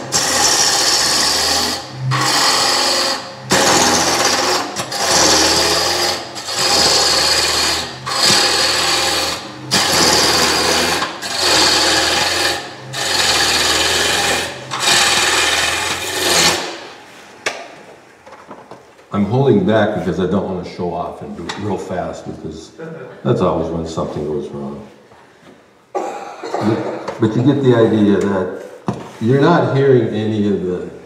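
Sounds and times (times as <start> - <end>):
lathe humming: 0.0 - 16.8
lathe tool cutting wood: 0.0 - 16.9.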